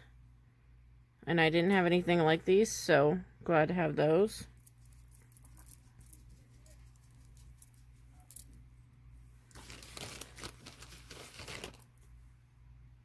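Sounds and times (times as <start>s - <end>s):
low steady hum: 0.0s - 13.0s
beads clicking and rustling: 4.5s - 8.6s, 9.5s - 12.1s.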